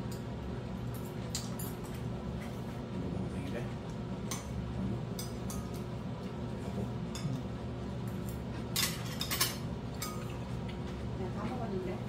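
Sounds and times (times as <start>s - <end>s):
low room hum: 0.0s - 12.0s
utensils clinking on ceramic bowls: 8.7s - 10.4s.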